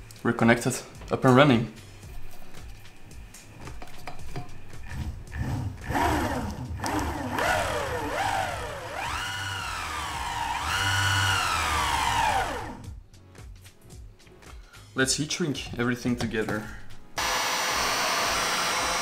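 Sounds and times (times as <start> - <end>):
electric motors whining: 4.7 - 12.9, 17.2 - 19.0.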